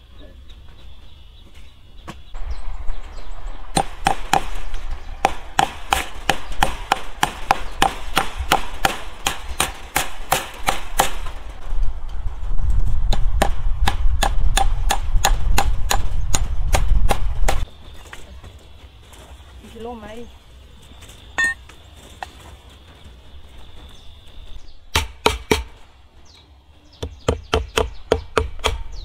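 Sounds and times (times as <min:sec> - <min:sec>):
low rumble: 0:02.4 - 0:07.8, 0:10.9 - 0:17.6
hammer striking wooden post: 0:03.8 - 0:04.6, 0:05.2 - 0:11.3, 0:13.1 - 0:17.6, 0:24.9 - 0:25.8, 0:27.0 - 0:29.0.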